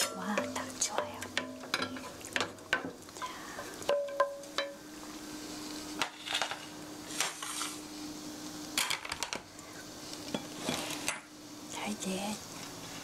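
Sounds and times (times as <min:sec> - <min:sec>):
utensils clinking on pans: 0:00.0 - 0:04.8
steady low hum: 0:00.0 - 0:13.0.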